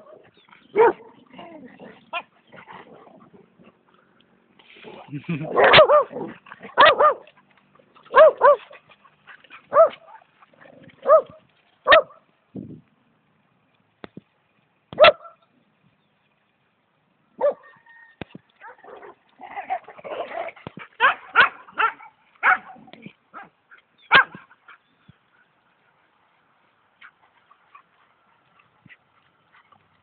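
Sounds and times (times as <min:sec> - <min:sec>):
dogs barking and yapping: 0:00.0 - 0:03.9, 0:05.4 - 0:12.3, 0:15.0 - 0:15.4, 0:17.4 - 0:30.0.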